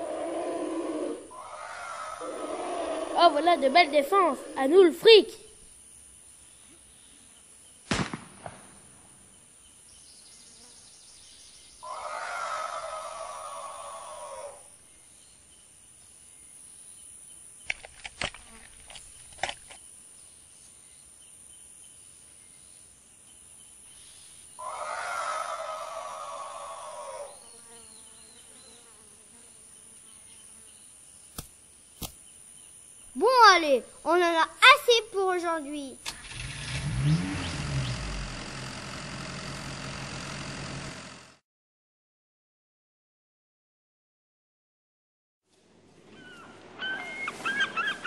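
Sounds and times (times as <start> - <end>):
elephant cry: 0.0 - 4.9, 11.8 - 14.7, 24.6 - 27.5
gunshot with echo: 7.9 - 8.9
sharp clicks: 17.6 - 19.8.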